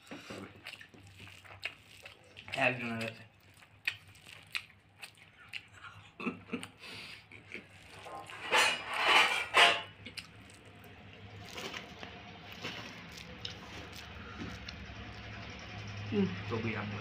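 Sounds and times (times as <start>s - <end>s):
dishes and utensils clinking: 8.0s - 10.0s.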